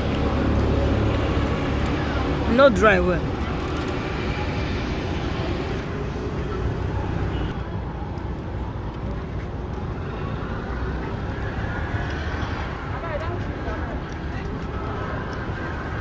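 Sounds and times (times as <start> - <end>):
road traffic: 0.0 - 16.0.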